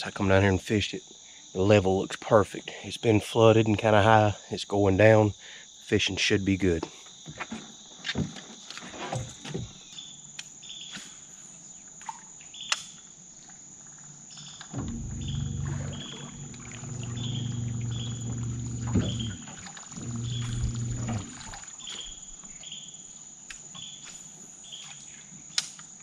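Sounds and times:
insects droning and chirping: 0:00.0 - 0:26.0
electric trolling motor humming: 0:14.7 - 0:21.6
knocks on aluminium boat: 0:14.8 - 0:21.4.

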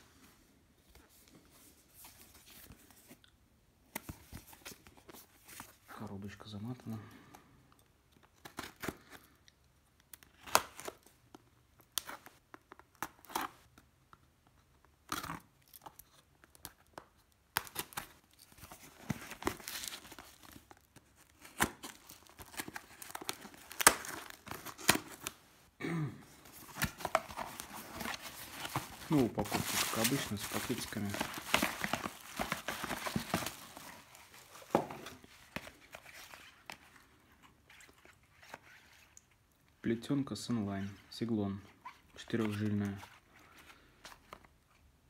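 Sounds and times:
bubble wrap tearing and crinkling: 0:15.0 - 0:25.4, 0:26.4 - 0:36.9.

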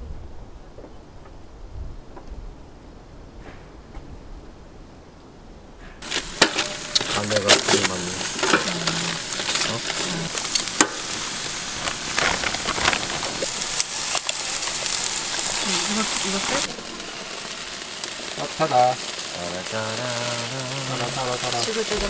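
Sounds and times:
sharp crackles and pops: 0:05.8 - 0:22.0
meat sizzling on a grill: 0:06.0 - 0:22.0.

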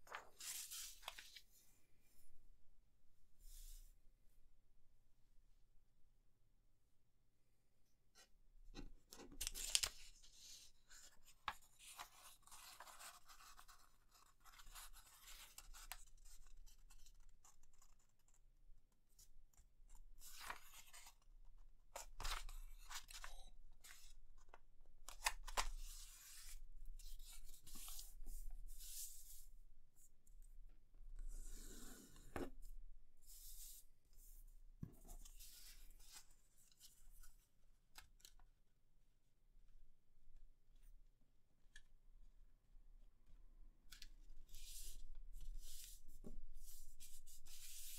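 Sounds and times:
paper rustling and crinkling: 0:00.1 - 0:01.4, 0:09.2 - 0:15.9
paper crease crackles: 0:09.4 - 0:10.0.

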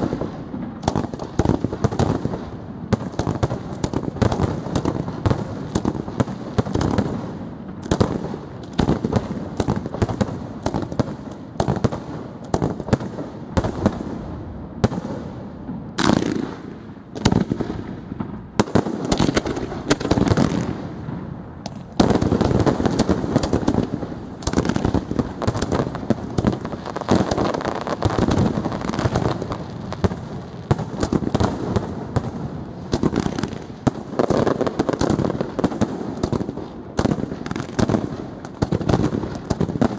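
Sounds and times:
fireworks bursts banging: 0:00.0 - 0:39.9.

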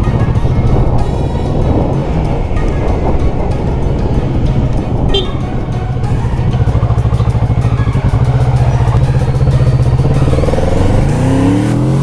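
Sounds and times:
motorcycle engine revving: 0:05.0 - 0:12.0.

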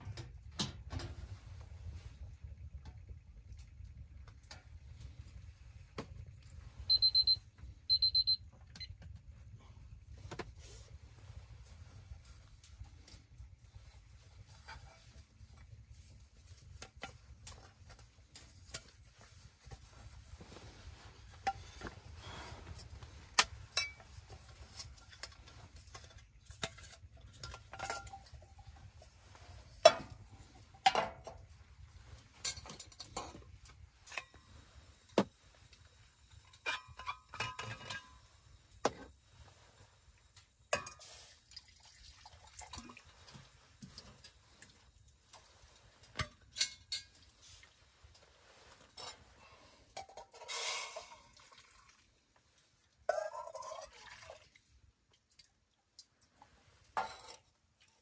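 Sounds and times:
metal cookware clinking: 0:23.4 - 0:24.1, 0:25.9 - 0:28.8, 0:36.4 - 0:38.3, 0:40.7 - 0:41.2, 0:46.2 - 0:47.3, 0:50.0 - 0:51.2, 0:53.1 - 0:53.9.

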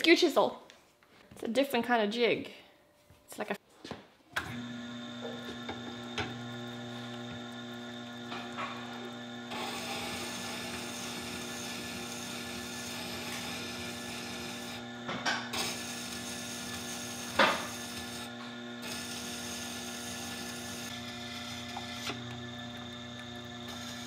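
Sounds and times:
sharpener motor hum: 0:04.5 - 0:24.0
grindstone grinding chisel: 0:08.3 - 0:22.4.

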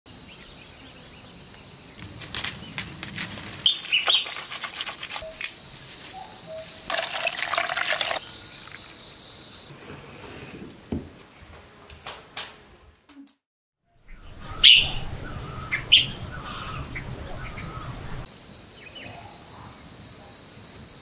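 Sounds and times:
bird chirping: 0:00.3 - 0:06.9, 0:08.2 - 0:09.7, 0:14.0 - 0:19.7
water splashing and squelching: 0:02.0 - 0:05.7, 0:06.6 - 0:08.2.

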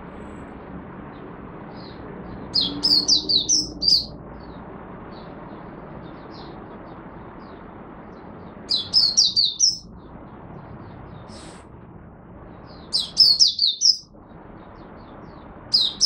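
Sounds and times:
bird warbling song: 0:01.7 - 0:05.3, 0:08.7 - 0:10.0, 0:12.6 - 0:16.0.

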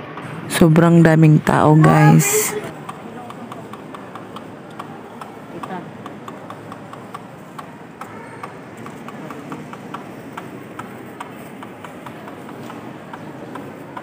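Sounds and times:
crowd murmur: 0:01.5 - 0:14.0
sharp clicks and taps: 0:02.8 - 0:14.0.

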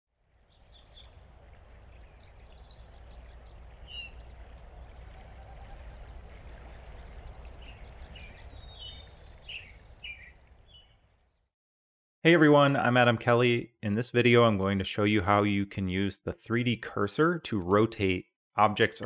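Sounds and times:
birds chirping and trilling: 0:00.4 - 0:11.5
steady low rumble: 0:00.6 - 0:09.8.

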